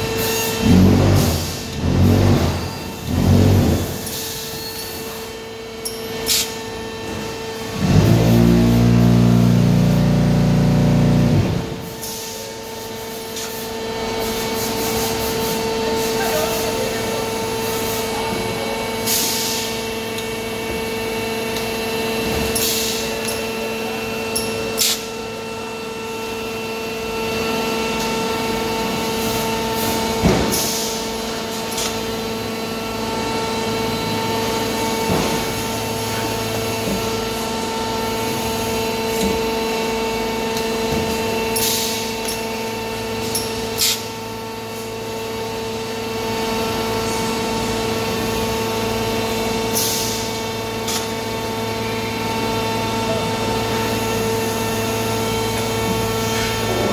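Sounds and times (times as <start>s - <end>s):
steady machine hum: 0.0s - 56.9s.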